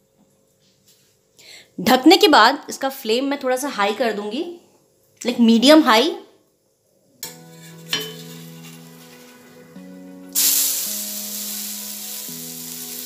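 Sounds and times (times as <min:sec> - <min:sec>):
background music with sustained notes: 0:07.2 - 0:13.0
loud sizzle of frying: 0:07.6 - 0:13.0.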